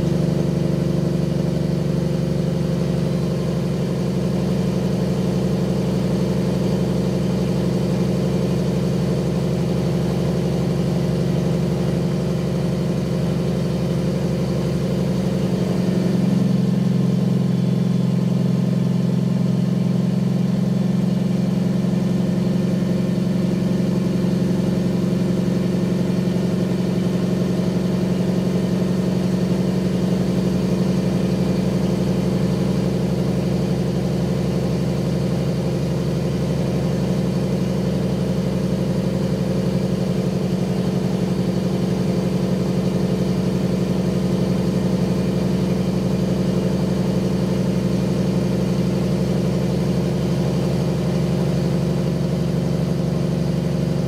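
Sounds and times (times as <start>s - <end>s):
truck diesel engine running: 0.0s - 54.0s.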